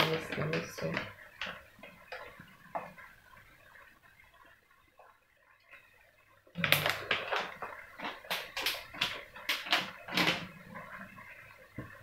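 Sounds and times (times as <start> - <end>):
plastic packet crinkling: 6.6 - 10.6.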